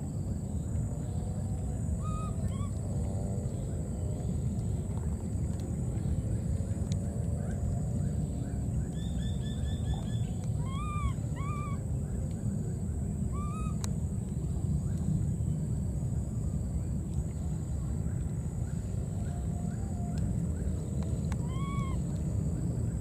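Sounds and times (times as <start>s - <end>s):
steady low rumble: 0.0s - 23.0s
whistle-like animal calls: 9.1s - 11.8s, 13.4s - 13.8s, 21.4s - 22.0s.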